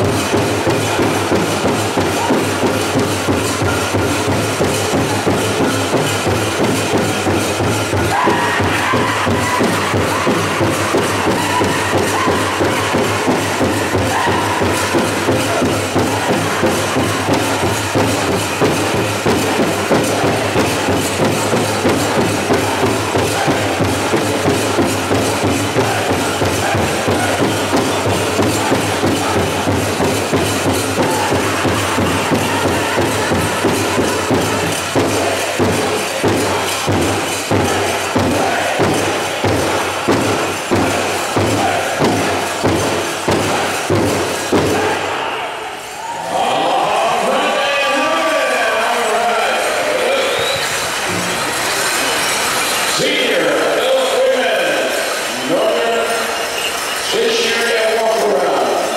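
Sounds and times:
big drum beating: 0.0 - 45.4
group singing: 25.2 - 30.1, 31.0 - 42.6.

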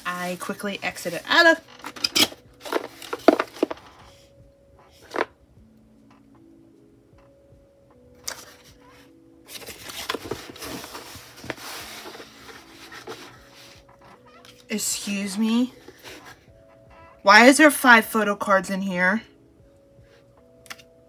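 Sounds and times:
packaging rustling: 0.0 - 3.9, 9.5 - 14.6
soft lo-fi background music: 0.0 - 21.0.

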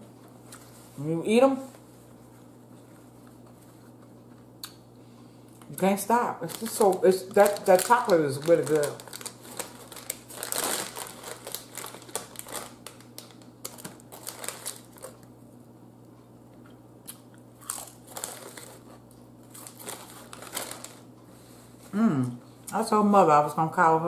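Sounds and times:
chip bag crinkling: 5.6 - 15.4, 17.6 - 21.1
chips being crunched: 17.1 - 21.1.

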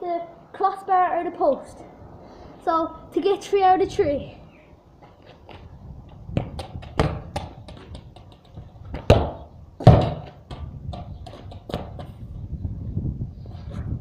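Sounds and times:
football thudding on concrete: 6.3 - 12.2.

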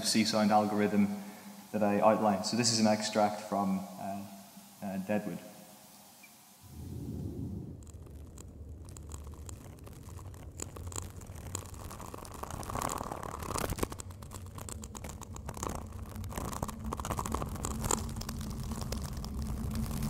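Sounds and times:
crackles scratches and clicks: 6.2 - 20.0
low rumble: 6.6 - 12.5.

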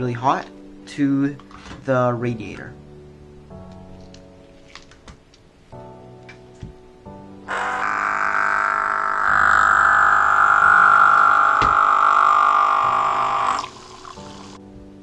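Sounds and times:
small water pump whining: 7.5 - 14.6.

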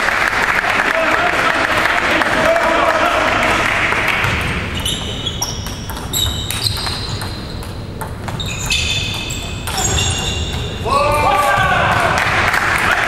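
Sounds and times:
applause: 0.0 - 4.2, 12.2 - 13.0.

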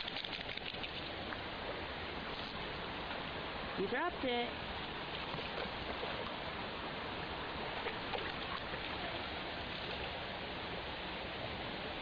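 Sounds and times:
creek water running over rocks: 0.0 - 12.0.

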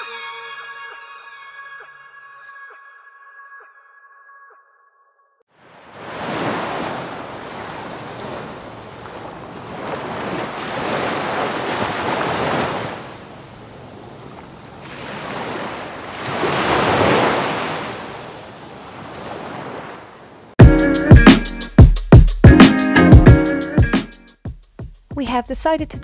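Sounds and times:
ocean surf breaking on beach: 5.6 - 20.6.

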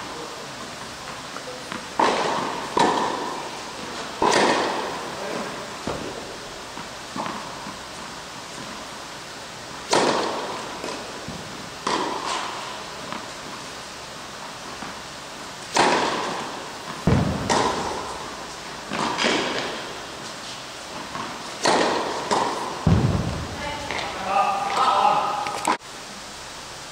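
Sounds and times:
tennis racket hitting ball: 1.7 - 3.4, 4.2 - 5.0, 9.8 - 13.3, 15.7 - 20.3, 20.9 - 24.8
ball impacts: 4.2 - 5.0, 15.7 - 20.0, 21.0 - 24.2.

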